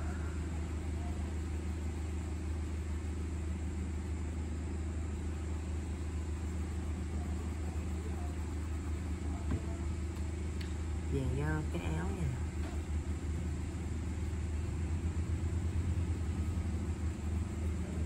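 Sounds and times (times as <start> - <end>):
low hum: 0.0 - 18.0.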